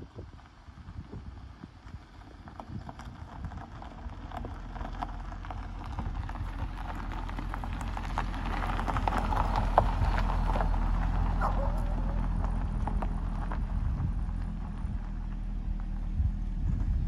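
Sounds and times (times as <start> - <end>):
gravel crackling under tyres: 0.0 - 17.0
car engine passing by: 4.7 - 17.0.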